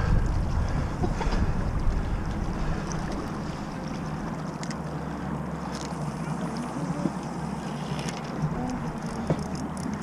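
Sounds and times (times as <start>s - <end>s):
low rumble: 0.0s - 6.6s
river water washing: 0.0s - 10.0s
wind: 0.0s - 10.0s.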